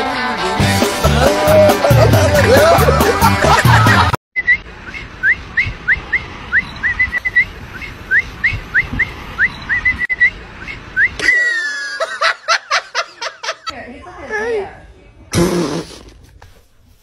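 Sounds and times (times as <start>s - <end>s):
person whistling short rising notes: 4.4s - 11.4s.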